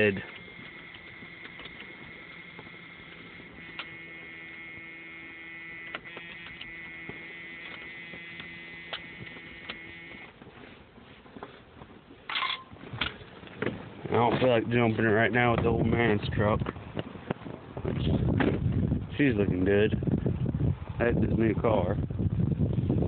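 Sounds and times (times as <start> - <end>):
electrical hum: 0.0 - 10.4
sharp clicks: 0.3 - 4.9, 5.7 - 10.3.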